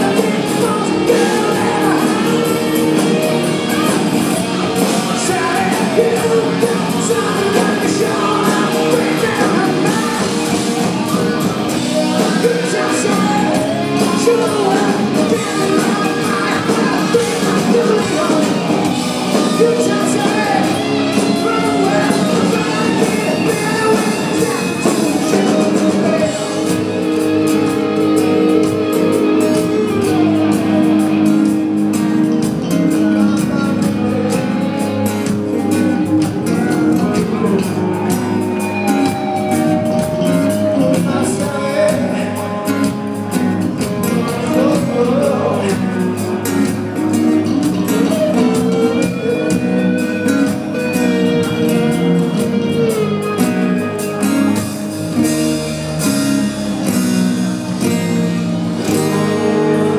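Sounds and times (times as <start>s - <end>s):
male singer singing: 0.0s - 11.4s, 12.0s - 26.9s, 35.5s - 43.0s, 43.9s - 53.4s, 58.8s - 59.9s
rock band playing live: 0.0s - 59.9s
strummed acoustic guitar: 15.9s - 59.9s.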